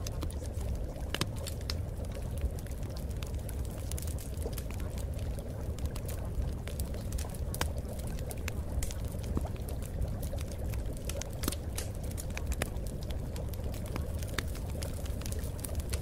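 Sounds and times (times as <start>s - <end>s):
crackles and clicks: 0.0s - 16.0s.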